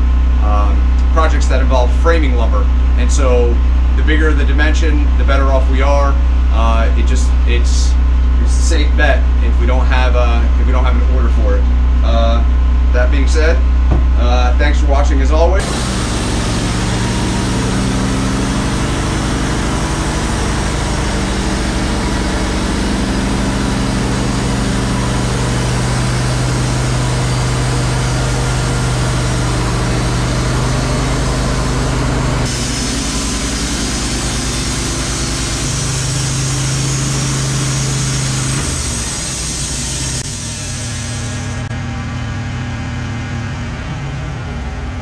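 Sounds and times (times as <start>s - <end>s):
sawmill engine under load: 0.0s - 45.0s
band blade sawing log: 15.6s - 40.3s.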